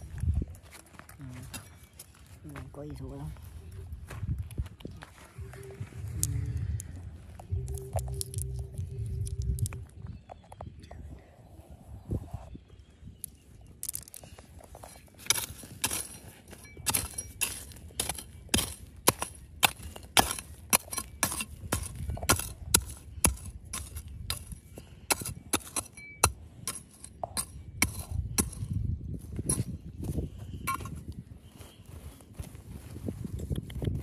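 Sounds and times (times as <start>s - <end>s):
metal tool striking rock: 13.8s - 31.0s.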